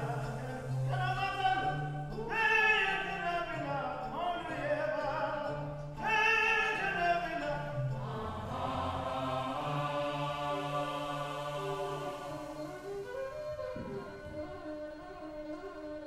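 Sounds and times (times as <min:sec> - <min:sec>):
man singing opera: 0:00.0 - 0:13.6
sustained accompaniment with low drone: 0:08.0 - 0:13.3.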